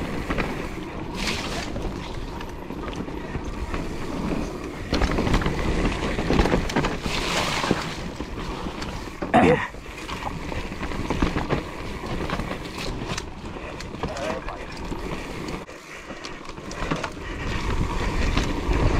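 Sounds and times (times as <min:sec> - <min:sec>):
bike rattling and knocking: 0:00.0 - 0:18.9
tyres on dirt and brush: 0:00.0 - 0:18.9
wind buffeting microphone: 0:16.4 - 0:18.9.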